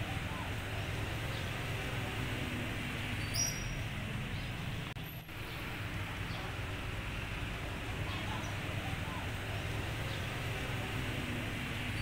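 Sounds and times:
faint bird chirps: 3.2s - 6.5s.

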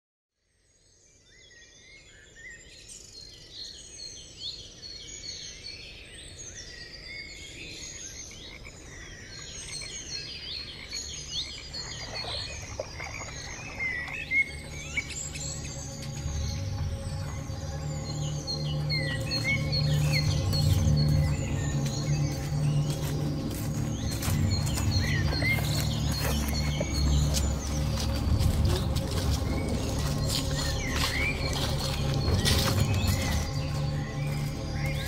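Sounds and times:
birds chirping and calling: 6.9s - 35.0s.

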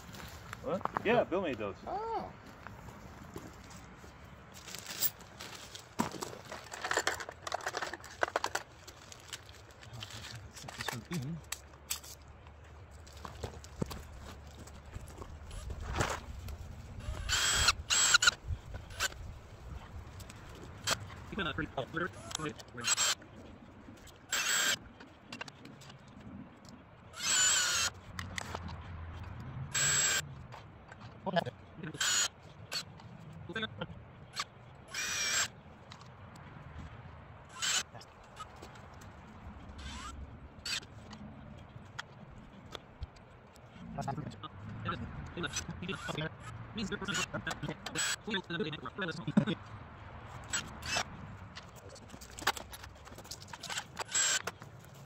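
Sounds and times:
small hard parts clicking: 6.0s - 15.8s, 24.0s - 33.2s, 49.4s - 55.0s
cordless drill whirring: 17.0s - 19.2s, 22.2s - 23.2s, 24.3s - 24.8s, 27.2s - 27.9s, 29.7s - 30.2s, 32.0s - 32.3s, 34.9s - 35.5s, 37.5s - 37.9s, 39.8s - 40.1s, 54.0s - 54.5s.

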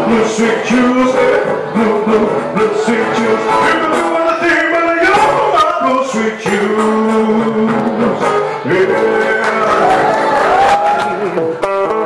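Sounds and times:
man singing into microphone: 0.0s - 10.5s
acoustic guitar: 0.0s - 12.0s.

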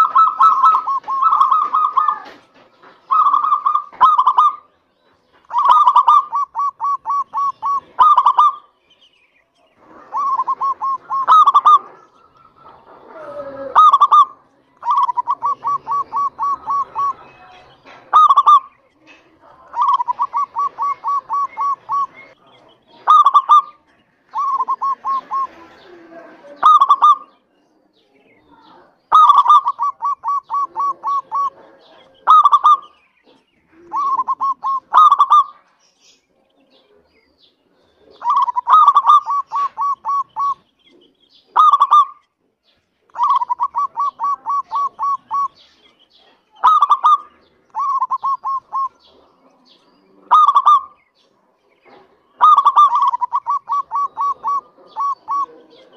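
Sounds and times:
dove cooing: 0.0s - 4.7s, 5.4s - 8.8s, 9.7s - 27.4s, 28.4s - 35.7s, 37.6s - 42.2s, 43.1s - 55.9s.

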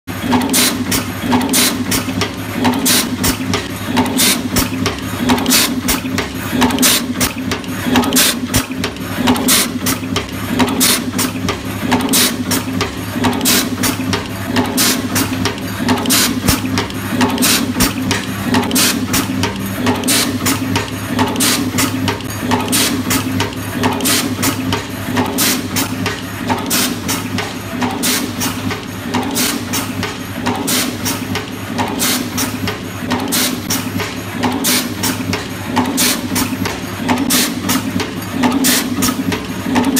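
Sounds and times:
rapid mechanical clicks and clacks: 0.0s - 39.9s
machine hum: 0.1s - 30.7s.

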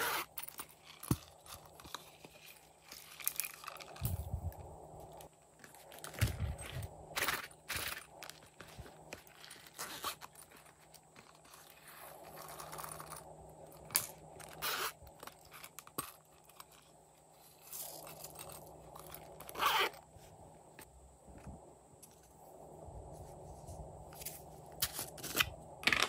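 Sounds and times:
plastic toys rustling: 0.0s - 20.0s.

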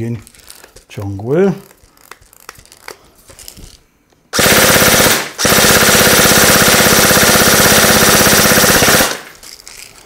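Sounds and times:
airsoft gun firing full-auto: 4.3s - 9.4s.

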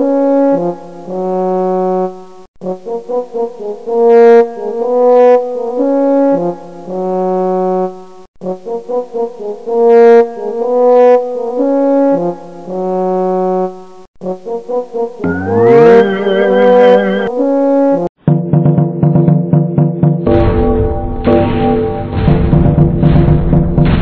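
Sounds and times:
brass melody: 9.7s - 18.1s.

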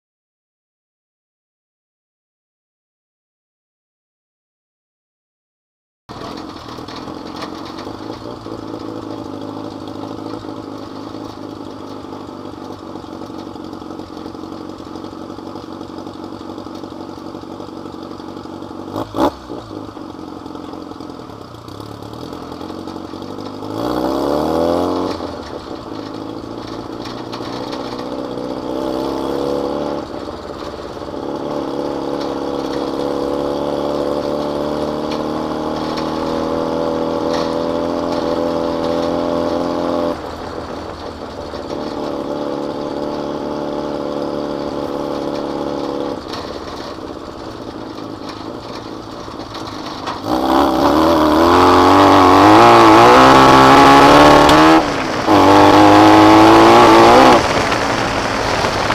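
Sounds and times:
buggy engine running: 6.1s - 58.9s.

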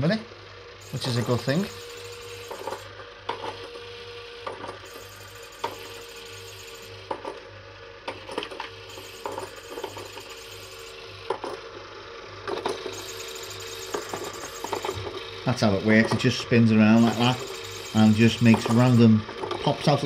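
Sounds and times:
toy motor humming: 0.8s - 7.3s, 8.1s - 11.6s, 12.2s - 20.0s
toy mechanism clicking and knocking: 0.9s - 3.7s, 8.1s - 11.6s, 12.4s - 15.3s, 16.0s - 19.7s.

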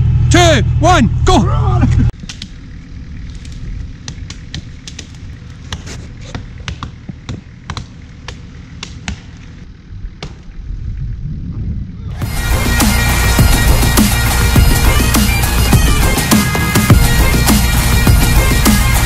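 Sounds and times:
axes chopping a tree trunk: 4.0s - 9.6s, 10.2s - 10.5s
music: 12.2s - 19.0s.

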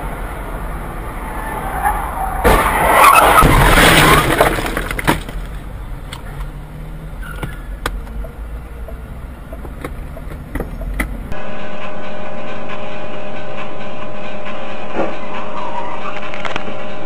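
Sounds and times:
car engine and road rumble: 0.0s - 11.4s
car collision crunch: 1.9s - 6.5s.

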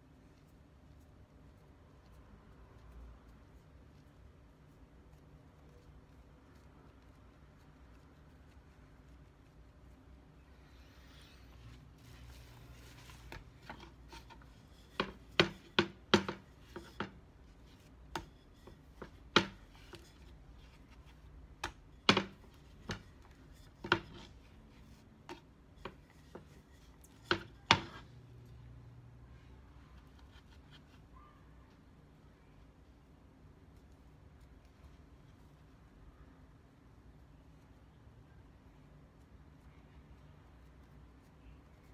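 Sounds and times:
rolling pin knocking on cutting board: 13.3s - 17.2s, 18.1s - 20.1s, 21.6s - 24.3s, 27.2s - 28.0s.

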